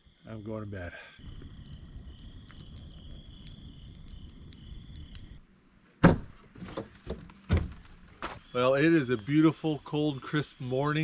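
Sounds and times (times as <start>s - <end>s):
night insects trilling: 0.0s - 5.4s, 8.2s - 11.0s
campfire crackling: 0.0s - 6.3s, 7.3s - 11.0s.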